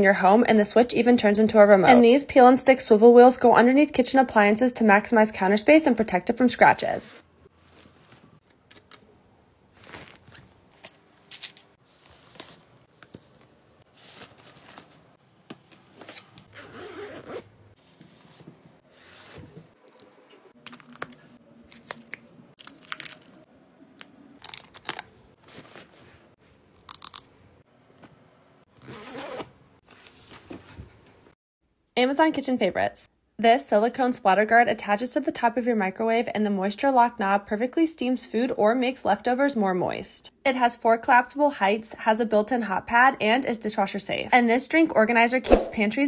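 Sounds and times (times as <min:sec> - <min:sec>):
fabric and plastic rustling: 0:07.5 - 0:23.4.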